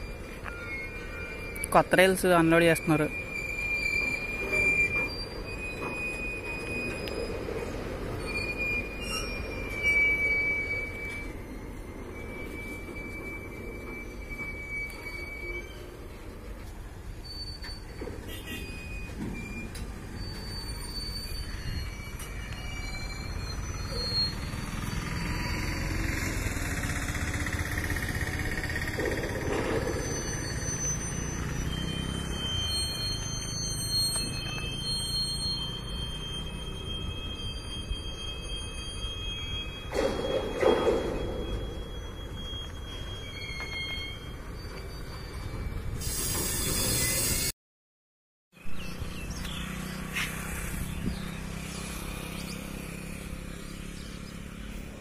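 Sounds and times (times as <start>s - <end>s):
engine running with low rumble: 23.2s - 30.2s.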